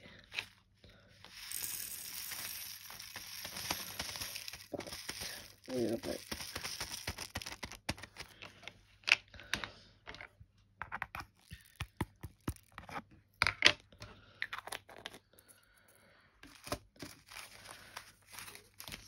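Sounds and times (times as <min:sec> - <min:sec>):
plastic bags crinkling: 0:01.2 - 0:08.4, 0:16.4 - 0:19.0
tiny resin beads rattling: 0:01.3 - 0:08.0.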